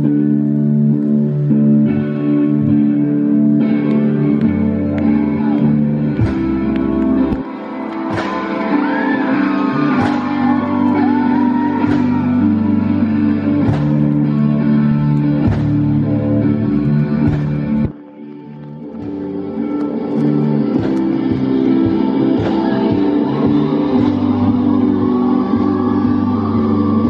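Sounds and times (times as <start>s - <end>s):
high sliding guitar line: 0.0s - 27.0s
rock band playing live: 0.0s - 27.0s
heavy drum hits: 13.6s - 14.2s, 17.2s - 17.9s.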